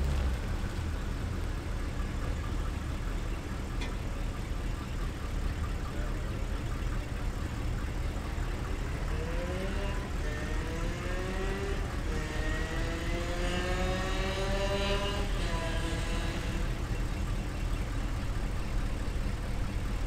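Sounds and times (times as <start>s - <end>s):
car engine rumble: 0.0s - 20.0s.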